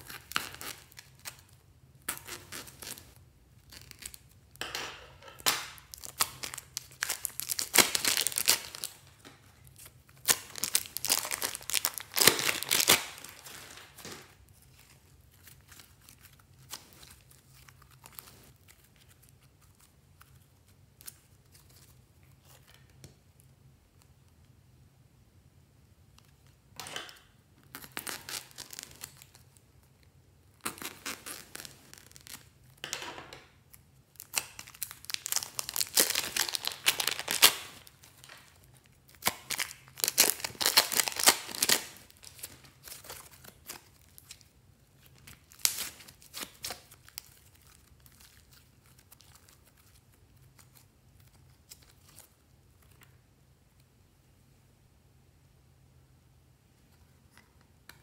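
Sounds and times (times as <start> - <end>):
plastic piping bags crinkling: 0.0 - 4.4, 5.4 - 22.0, 27.7 - 30.0, 30.6 - 32.8, 34.1 - 53.1.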